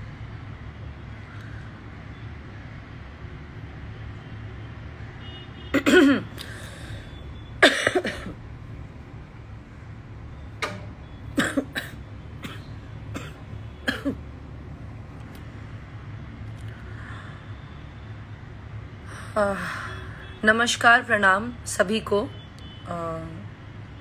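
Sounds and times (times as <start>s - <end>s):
woman clearing throat: 5.8s - 6.3s, 13.2s - 14.2s
woman coughing: 5.8s - 6.3s, 7.6s - 8.4s, 11.4s - 12.6s, 13.2s - 14.2s.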